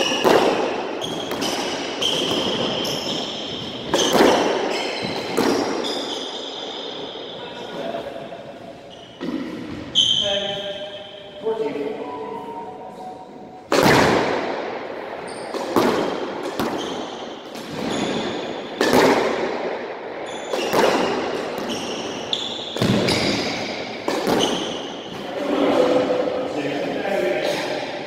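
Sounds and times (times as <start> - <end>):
squash ball hits echoing: 0.0 - 7.4, 9.2 - 10.0, 13.6 - 25.3
sneakers squeaking on wooden floor: 0.0 - 11.4, 15.2 - 19.0, 20.2 - 25.2.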